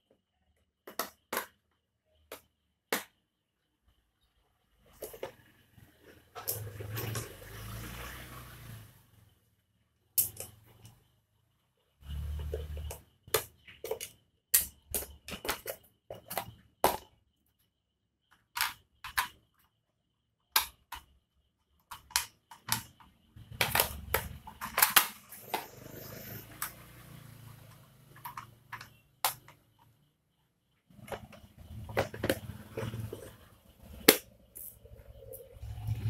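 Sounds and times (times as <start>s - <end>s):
plastic parts clicking: 0.5s - 3.1s, 10.2s - 11.0s, 12.2s - 17.1s, 18.3s - 19.7s, 20.5s - 21.1s, 21.8s - 26.8s, 27.6s - 30.0s, 30.9s - 35.4s.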